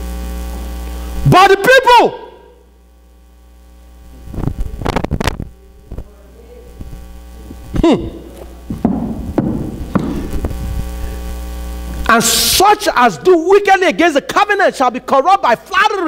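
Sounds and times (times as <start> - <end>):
electrical mains hum: 0.0 - 16.0
short falling vocal sound: 7.4 - 8.5.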